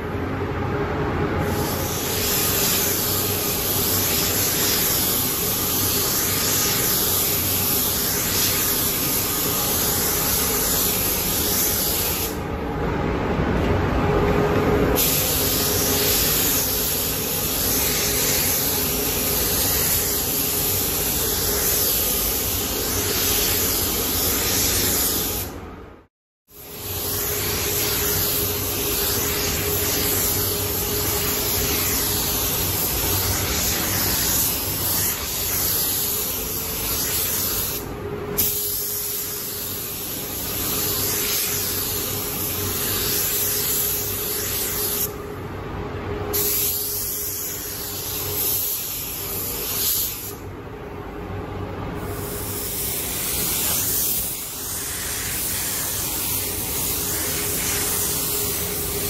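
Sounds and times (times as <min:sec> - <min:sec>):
spray gun hissing: 0:01.4 - 0:12.4, 0:15.0 - 0:25.6, 0:26.5 - 0:45.2, 0:46.3 - 0:50.4, 0:52.0 - 0:59.0.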